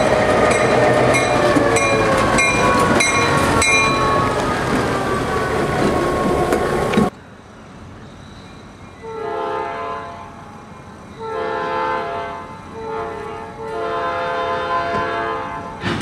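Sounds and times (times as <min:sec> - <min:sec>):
locomotive air horn blasts: 0:09.0 - 0:10.4, 0:11.2 - 0:15.8.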